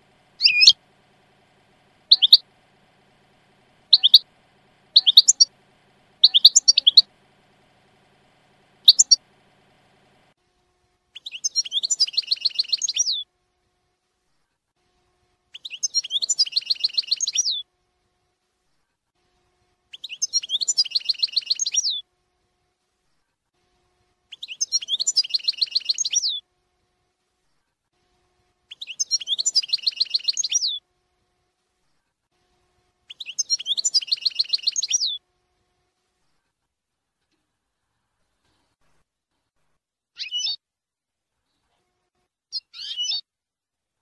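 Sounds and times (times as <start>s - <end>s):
goldfinch twittering song: 0.3s - 0.8s, 2.0s - 2.5s, 3.9s - 4.3s, 4.9s - 5.6s, 6.2s - 7.1s, 8.8s - 9.3s, 11.2s - 13.2s, 15.6s - 17.6s, 24.4s - 26.4s, 28.7s - 30.8s, 33.1s - 35.2s.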